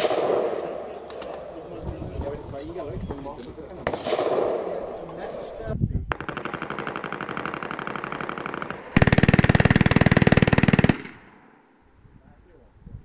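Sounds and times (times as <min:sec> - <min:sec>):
machine gun firing bursts: 0:06.1 - 0:11.3.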